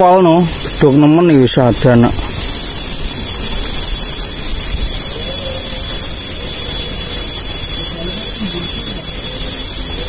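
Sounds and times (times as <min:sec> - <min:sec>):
steady loud hiss: 0:00.0 - 0:10.0.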